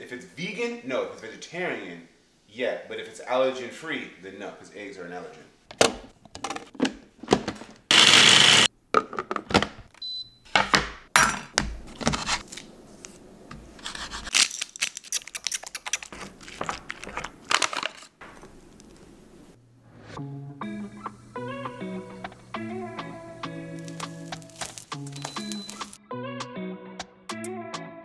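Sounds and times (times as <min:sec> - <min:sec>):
food chopper running: 0:07.9 - 0:08.7.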